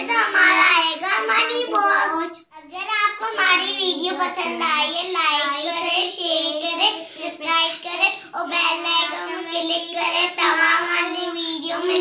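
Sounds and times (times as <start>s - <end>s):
girls singing: 0.0s - 2.4s.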